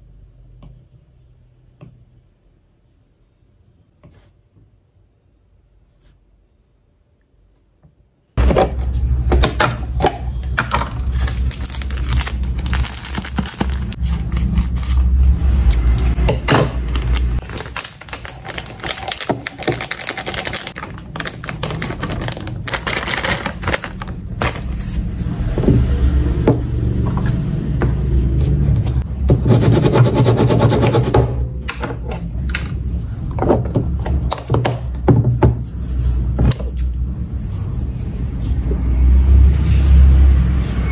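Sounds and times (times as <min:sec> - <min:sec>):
plastic bag crinkling: 0:10.8 - 0:15.2, 0:16.7 - 0:24.9.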